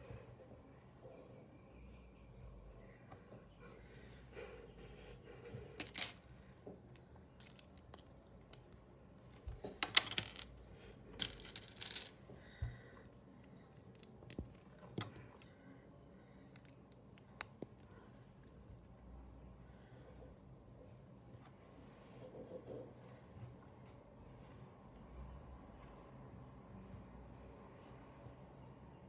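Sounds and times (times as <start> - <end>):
plastic pieces clicking on glass: 7.4 - 8.8, 11.2 - 12.2.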